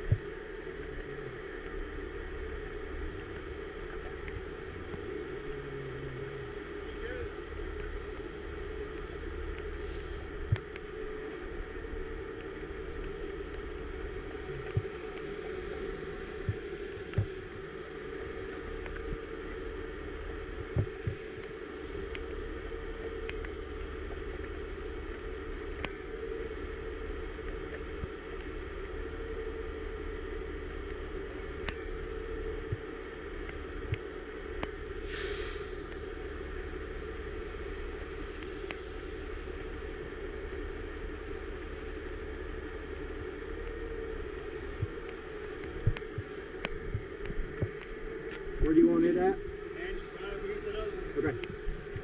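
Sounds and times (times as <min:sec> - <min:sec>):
diesel engines running: 0:28.2 - 0:45.5
brief hiss: 0:35.0 - 0:35.8.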